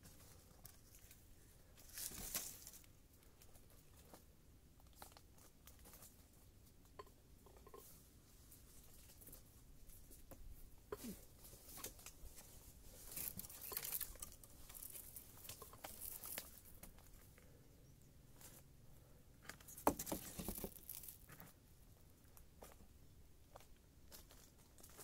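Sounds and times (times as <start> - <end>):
material rustling and crinkling: 0.0 - 6.5, 7.6 - 17.3, 19.6 - 21.6.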